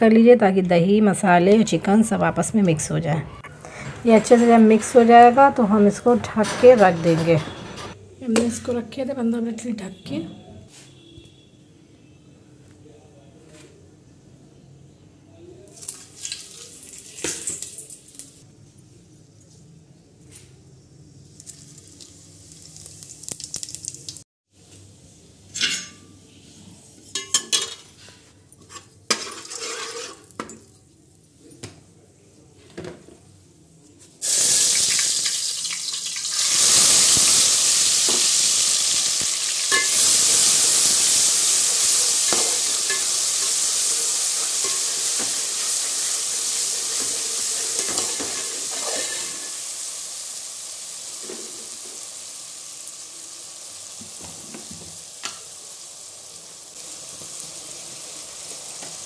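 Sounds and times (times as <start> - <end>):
spices crackling in hot oil: 15.7 - 18.4, 21.1 - 24.2, 34.2 - 59.0
oil sizzling loudly: 21.1 - 24.2, 29.1 - 30.4, 34.2 - 59.0.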